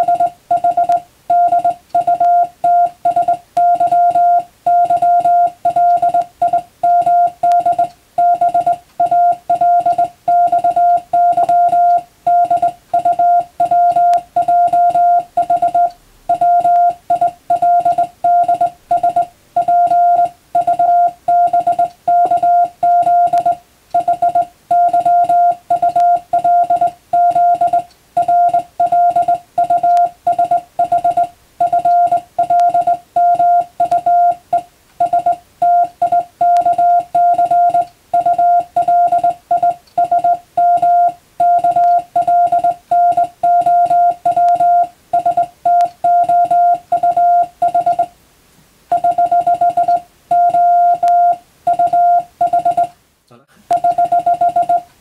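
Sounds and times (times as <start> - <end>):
morse code tone: 0.0 - 48.1, 48.9 - 53.0, 53.7 - 54.9.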